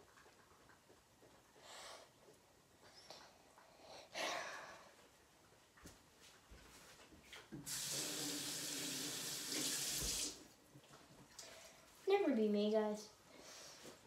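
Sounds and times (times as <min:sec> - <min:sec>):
water running into sink: 0:07.6 - 0:10.5.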